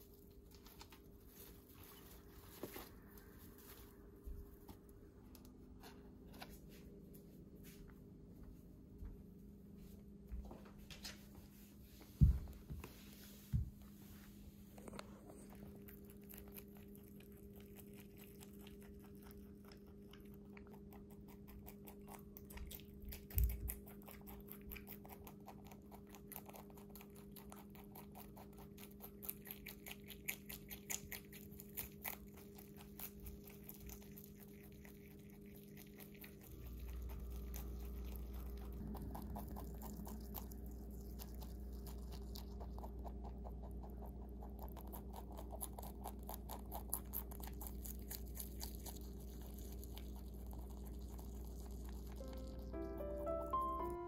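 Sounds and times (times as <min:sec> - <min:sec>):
rabbit chewing crunchy greens: 0:00.0 - 0:54.0
steady low hum: 0:00.0 - 0:54.0
low rumble: 0:36.3 - 0:45.0.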